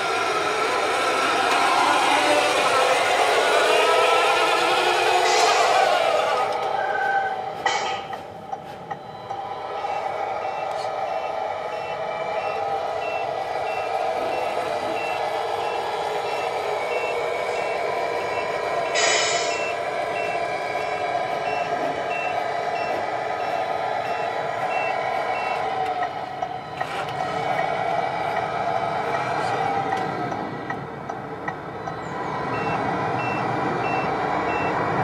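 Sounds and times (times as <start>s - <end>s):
simulated diesel engine drone: 0.0s - 35.0s
reversing alarm beeps: 6.4s - 26.9s, 30.0s - 34.9s
short hiss: 19.0s - 19.6s.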